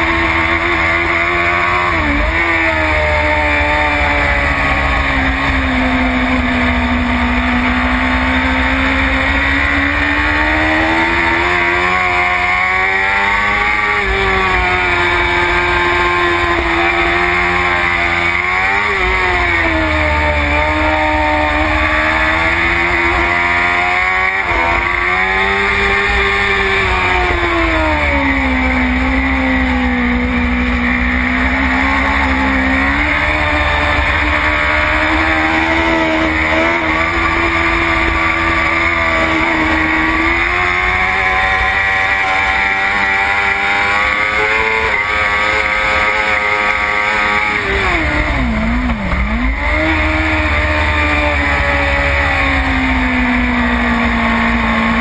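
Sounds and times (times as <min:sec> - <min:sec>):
motorcycle engine at racing speed: 0:00.0 - 0:55.0.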